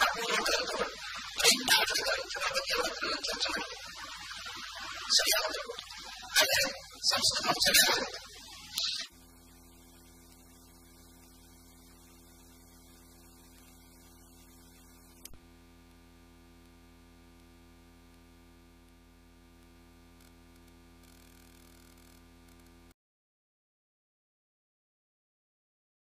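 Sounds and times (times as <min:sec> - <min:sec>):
faint hiss: 0:00.0 - 0:15.3
electrical mains hum: 0:00.0 - 0:22.9.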